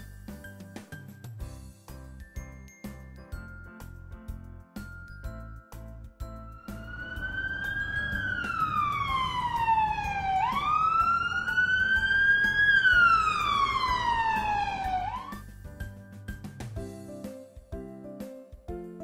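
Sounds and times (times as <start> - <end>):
low rumble: 6.5 - 14.8
emergency siren wailing: 6.5 - 15.4.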